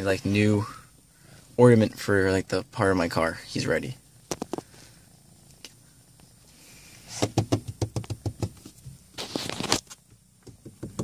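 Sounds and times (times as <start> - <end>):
kitten paws tapping on plastic: 7.2 - 8.8
rustling scuffle: 9.1 - 10.0.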